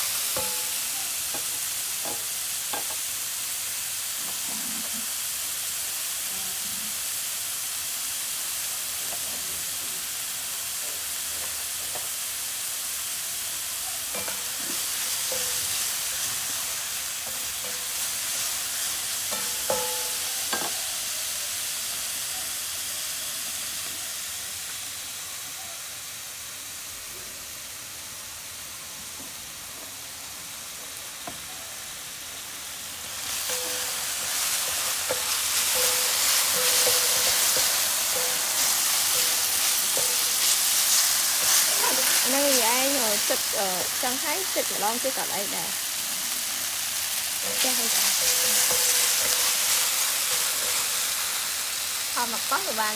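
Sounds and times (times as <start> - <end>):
seafood sizzling in frying pan: 0.0 - 52.9
spatula scraping and knocking pan: 33.5 - 40.7, 47.4 - 51.0.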